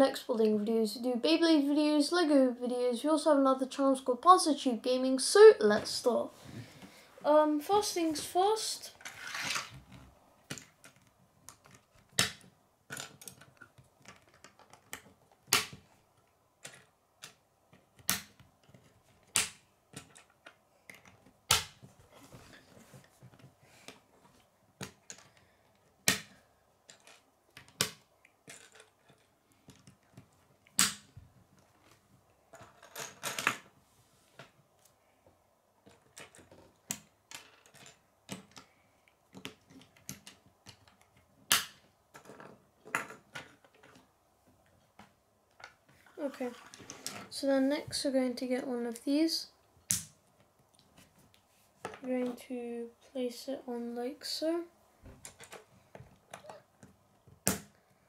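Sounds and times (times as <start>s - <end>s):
plastic parts clicking together: 10.5s - 21.8s, 24.8s - 33.7s, 35.8s - 45.8s
pieces rattling: 26.9s - 30.0s, 37.3s - 38.6s.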